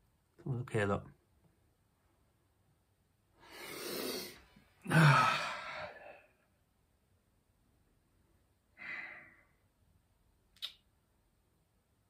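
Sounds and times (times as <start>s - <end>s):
man sighing heavily: 3.8s - 6.3s.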